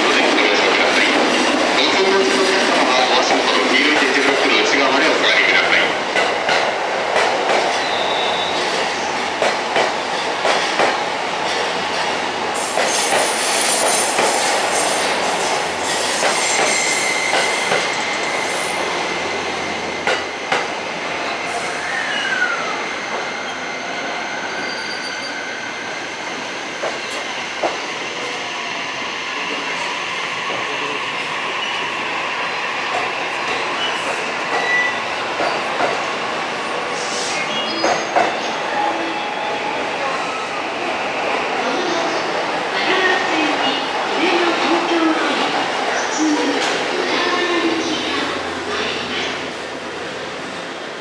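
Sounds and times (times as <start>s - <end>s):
high wheel squeal: 15.8s - 20.0s, 21.6s - 25.7s.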